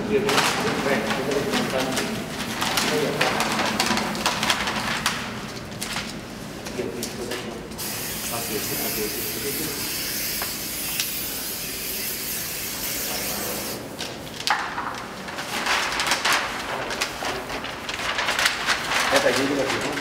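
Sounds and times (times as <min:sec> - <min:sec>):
paper crinkling and rustling: 0:00.0 - 0:07.8, 0:13.5 - 0:20.0.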